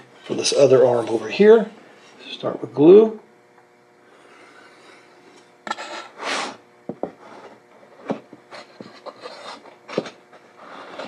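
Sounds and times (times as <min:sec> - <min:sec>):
wood scraping rub: 0:07.1 - 0:11.0.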